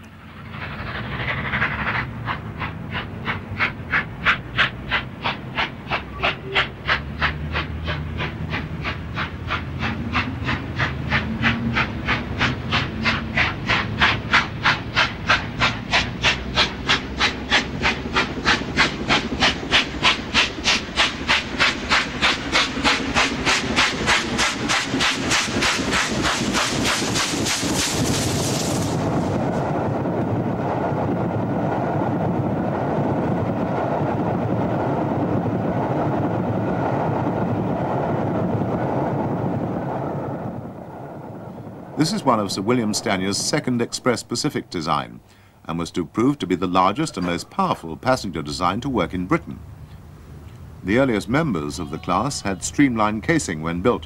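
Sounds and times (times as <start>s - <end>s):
steam locomotive chuffing: 0.0s - 31.6s, 42.0s - 49.6s, 50.9s - 54.0s
train passing rumble: 0.0s - 54.0s.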